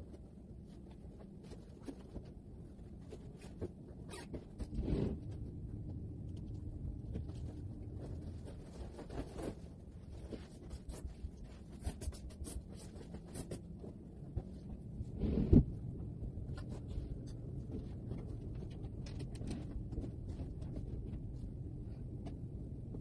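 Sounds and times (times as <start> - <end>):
fabric rustling and scraping: 0.0 - 5.6, 6.5 - 15.8.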